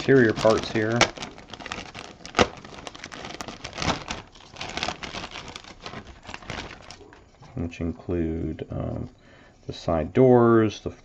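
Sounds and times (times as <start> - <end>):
plastic bag crinkling: 0.0 - 7.5.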